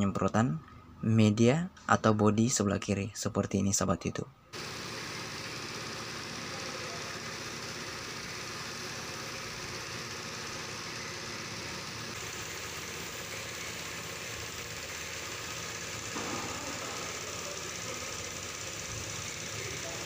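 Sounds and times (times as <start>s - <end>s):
air compressor humming: 4.5s - 20.0s
spray gun hissing: 4.6s - 20.0s.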